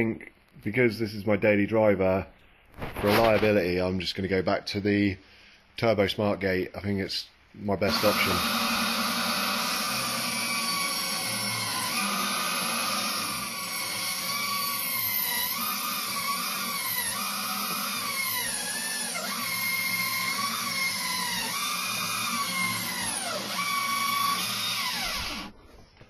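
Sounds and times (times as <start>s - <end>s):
bandsaw cutting metal: 7.9s - 25.5s.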